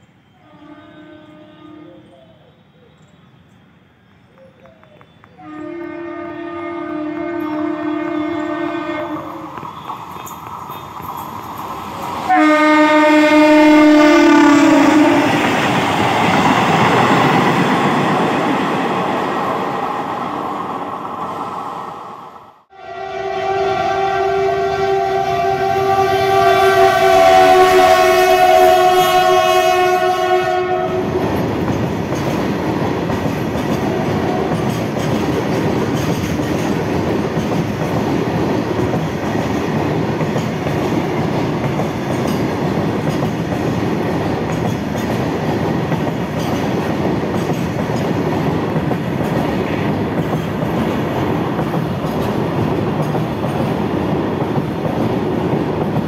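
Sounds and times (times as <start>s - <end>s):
locomotive air horn blast: 0.4s - 2.1s, 5.4s - 9.3s, 12.3s - 15.4s, 22.7s - 31.2s
train wagons rumbling over rail joints: 30.9s - 56.0s.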